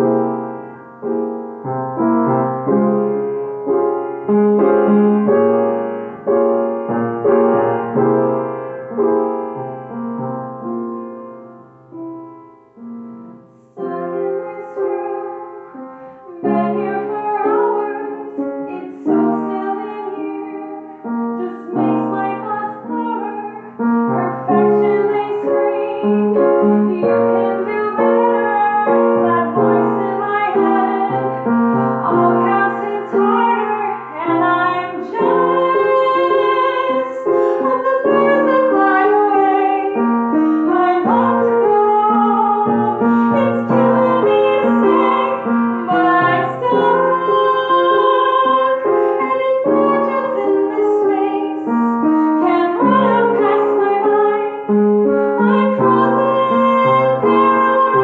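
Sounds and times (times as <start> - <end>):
piano chords: 0.0 - 58.0
woman singing: 13.8 - 58.0.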